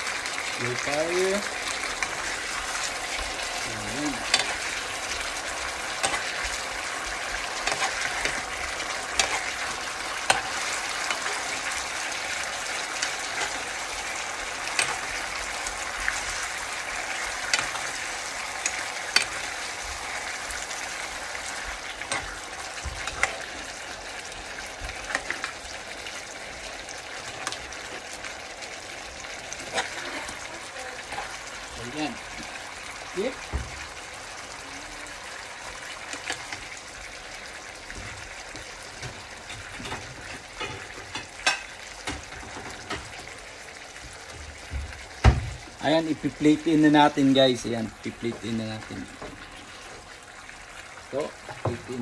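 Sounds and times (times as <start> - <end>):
sauce sizzling in a frying pan: 0.0 - 52.0
metal spoon clinking on pan: 4.2 - 4.7, 6.0 - 6.4, 7.6 - 8.4, 9.1 - 9.6, 14.7 - 15.2, 40.6 - 42.2.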